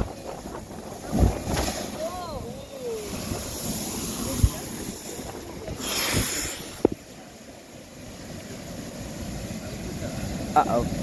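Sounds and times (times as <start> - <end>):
wind rumbling on microphone: 0.0 - 7.2
ocean swell surging: 0.0 - 11.0
hissing rush of spray: 2.9 - 7.0.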